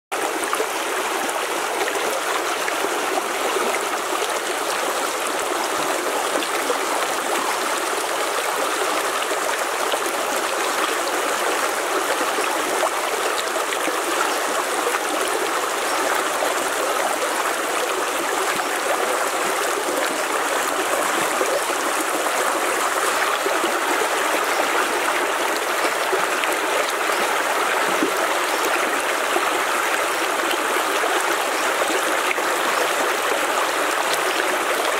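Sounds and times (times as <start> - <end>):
stream rushing over rocks: 0.1 - 34.9.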